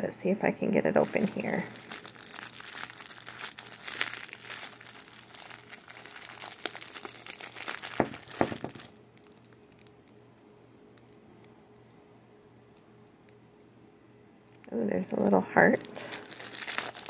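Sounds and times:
plastic bag crinkling: 0:00.9 - 0:10.4, 0:14.5 - 0:17.0
sharp cracks of plastic bag: 0:01.0 - 0:10.0, 0:15.8 - 0:17.0.

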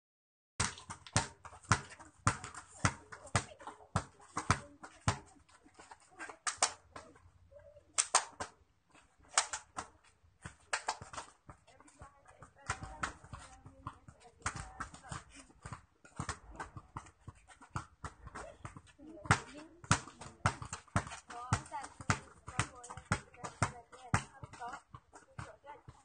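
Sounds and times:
volleyball slaps: 0:00.6 - 0:05.3, 0:06.2 - 0:07.2, 0:08.0 - 0:08.6, 0:09.2 - 0:11.4, 0:12.7 - 0:24.9.

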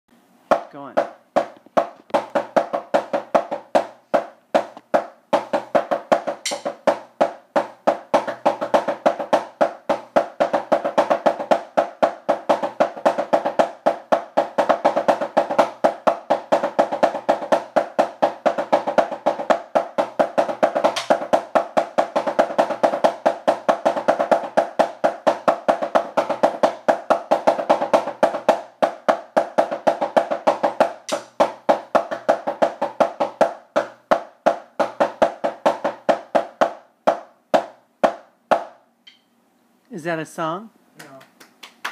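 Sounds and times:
drumsticks on practice pad: 0:00.5 - 0:08.0, 0:20.8 - 0:21.4, 0:37.1 - 0:39.4.

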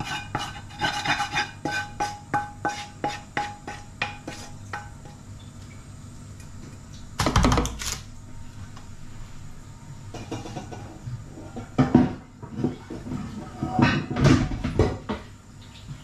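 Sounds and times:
wooden spoon tapping metal pan: 0:01.7 - 0:05.2.

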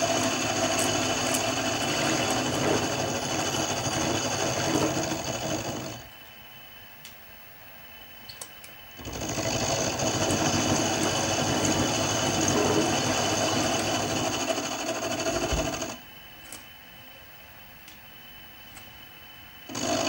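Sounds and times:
milling machine running: 0:00.0 - 0:06.1, 0:09.0 - 0:16.0, 0:19.6 - 0:20.0.

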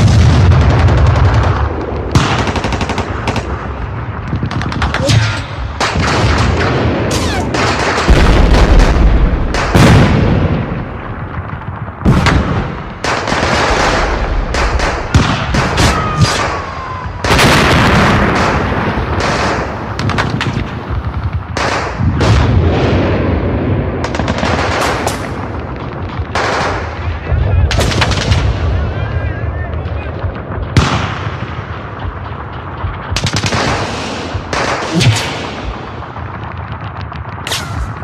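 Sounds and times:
heavy booms: 0:03.5 - 0:38.0
gunfire bursts: 0:24.0 - 0:27.1, 0:30.4 - 0:38.0.

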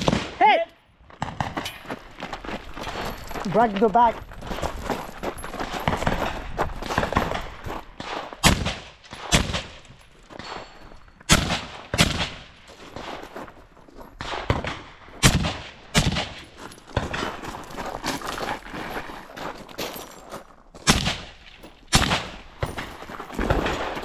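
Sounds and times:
rifle shots: 0:00.0 - 0:00.4, 0:07.0 - 0:10.7, 0:11.3 - 0:12.6, 0:14.2 - 0:17.2, 0:20.8 - 0:22.6, 0:23.4 - 0:24.0
faint gunshots: 0:07.0 - 0:09.8, 0:11.3 - 0:12.5.

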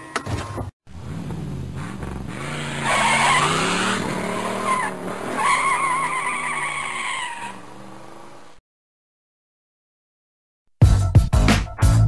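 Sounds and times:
car engine revving: 0:00.9 - 0:08.6
tyres squealing: 0:01.9 - 0:07.6.

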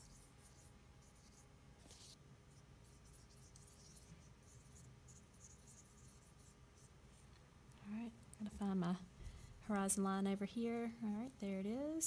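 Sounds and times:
paintbrush swishing on paper: 0:00.0 - 0:07.3.

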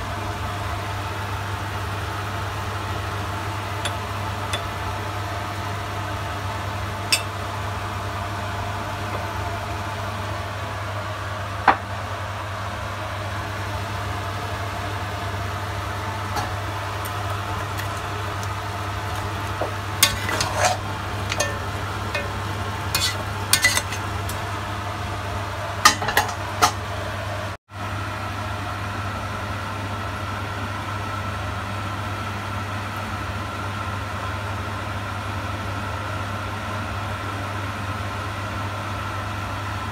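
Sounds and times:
meat sizzling in a pot: 0:14.3 - 0:26.8
spatula scraping a pot: 0:19.0 - 0:24.4.

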